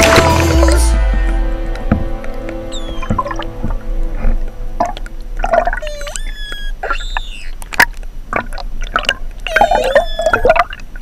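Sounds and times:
dolphins whistling: 2.7s - 3.5s, 5.8s - 7.7s, 9.5s - 10.6s
dolphin clicks: 5.8s - 8.0s.

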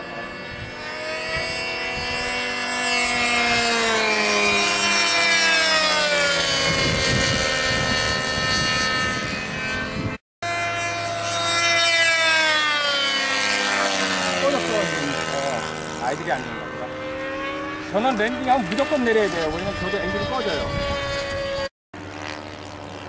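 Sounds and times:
model airplane engines flying past: 0.0s - 23.0s.

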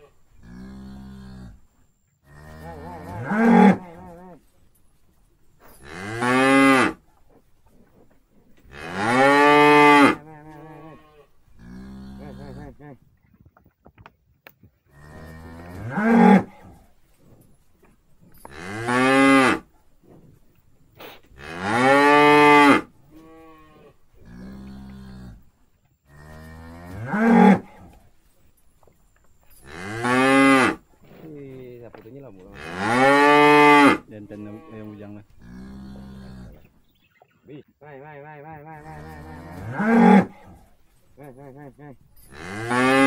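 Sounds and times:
cattle mooing: 2.3s - 4.4s, 8.6s - 12.8s, 14.9s - 16.8s, 21.4s - 25.4s, 26.1s - 28.0s, 32.5s - 36.7s, 38.6s - 40.6s, 41.2s - 43.0s.

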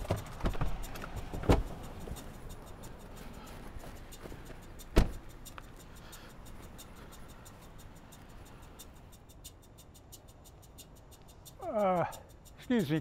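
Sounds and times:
car door slamming: 0.0s - 1.8s, 4.9s - 5.3s.

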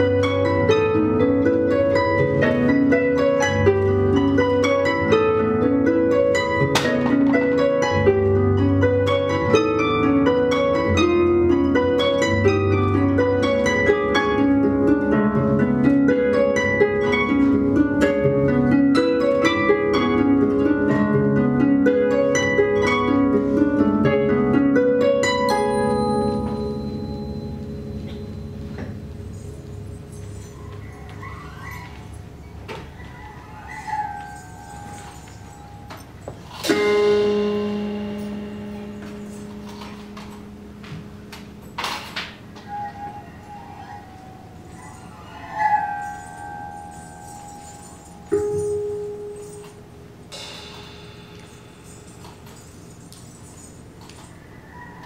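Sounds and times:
harps playing plucked notes: 0.0s - 30.7s, 34.0s - 52.2s
high steady ringing tone: 25.5s - 30.6s.

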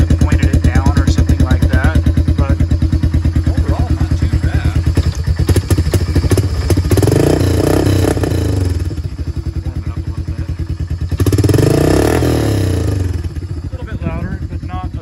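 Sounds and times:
quad bike engine idling and revving: 0.0s - 15.0s.

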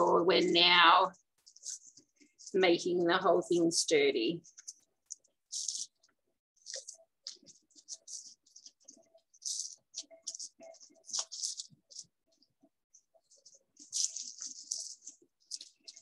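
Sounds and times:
wet paper crinkling and rustling: 6.6s - 12.5s, 13.3s - 16.0s.

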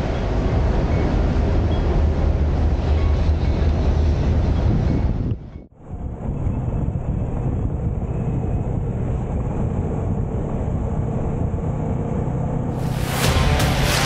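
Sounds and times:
wind and road noise: 0.0s - 14.0s
music with sharp beats: 12.8s - 14.0s.

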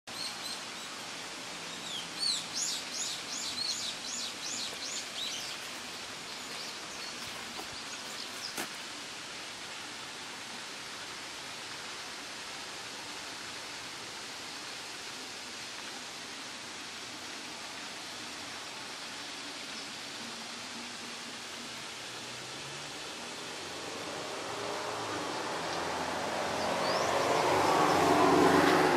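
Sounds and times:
songbird singing: 0.1s - 8.9s, 25.2s - 28.9s
outdoor hiss: 0.1s - 28.9s.

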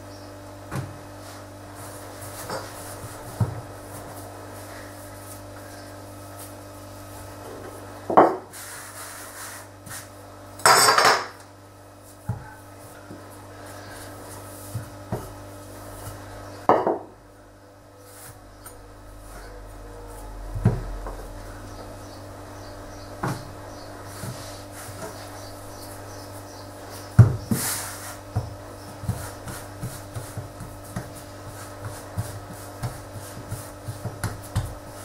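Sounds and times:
rolling pin rolling scrape: 8.4s - 10.1s, 27.5s - 28.2s.

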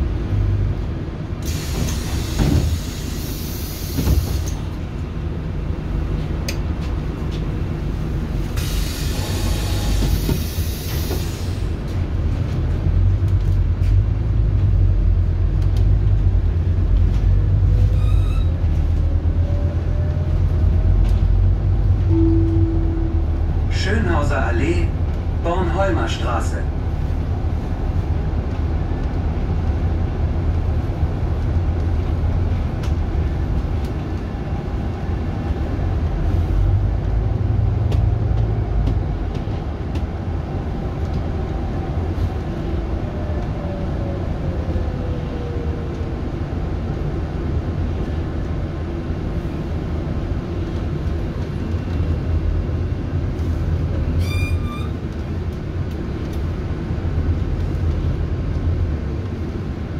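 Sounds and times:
bus drivetrain rumble: 0.0s - 59.9s
short high beep: 22.1s - 23.2s.

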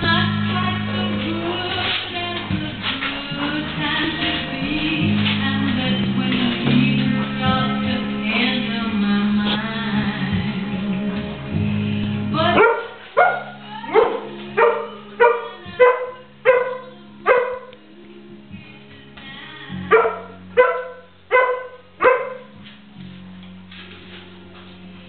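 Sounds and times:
background music: 0.0s - 25.0s
puppy barking: 12.6s - 17.7s, 19.9s - 22.6s.

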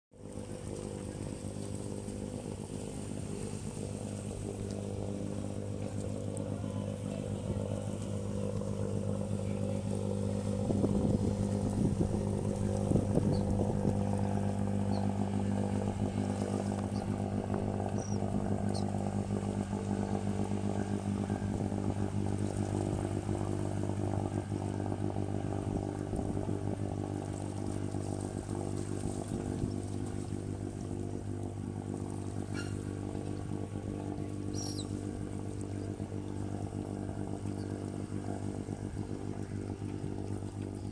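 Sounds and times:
boat engine droning: 0.1s - 40.9s.

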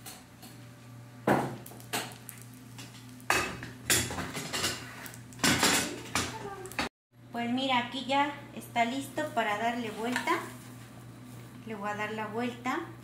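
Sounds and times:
metal pots and utensils clattering: 3.3s - 6.5s.

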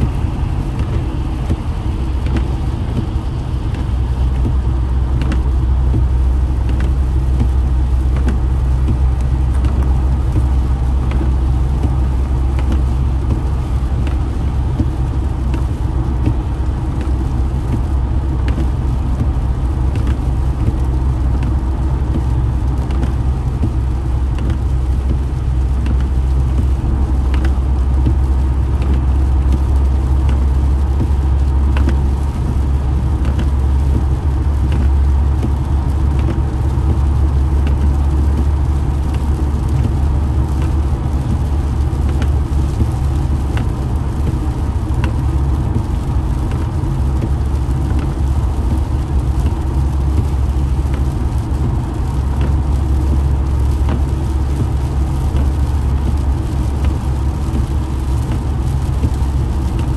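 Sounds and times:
road and tyre rumble in car: 0.0s - 59.9s
light ticks: 2.2s - 59.9s.

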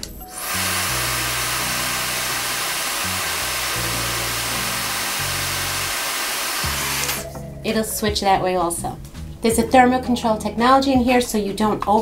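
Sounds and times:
hair dryer running: 0.3s - 7.4s.

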